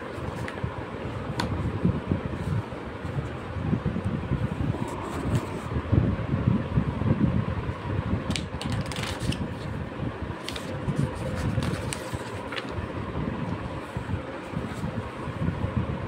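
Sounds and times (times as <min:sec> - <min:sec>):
book pages turning: 0:00.0 - 0:00.7, 0:08.3 - 0:12.8
low rumbling noise: 0:00.0 - 0:16.0.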